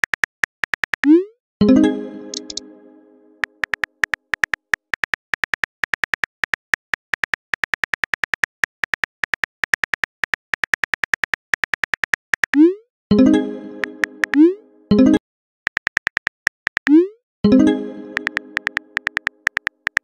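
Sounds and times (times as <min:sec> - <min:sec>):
phone keyboard typing clicks: 0:00.0 - 0:01.2, 0:02.3 - 0:02.6, 0:03.4 - 0:12.6, 0:13.8 - 0:14.4, 0:15.7 - 0:17.0, 0:18.2 - 0:20.0.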